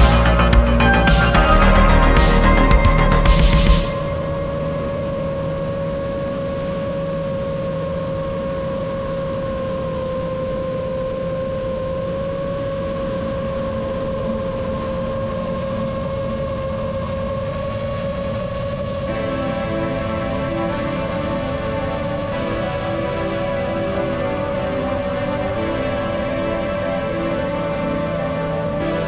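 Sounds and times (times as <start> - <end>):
propeller rushing noise: 0.0 - 7.6
drone motors humming: 0.0 - 29.0.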